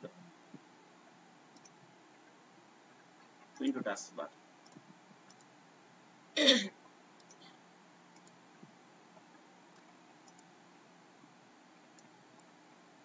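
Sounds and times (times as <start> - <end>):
computer mouse clicks: 1.5 - 1.8, 4.6 - 5.5, 7.2 - 8.4, 9.2 - 10.5, 11.9 - 12.6.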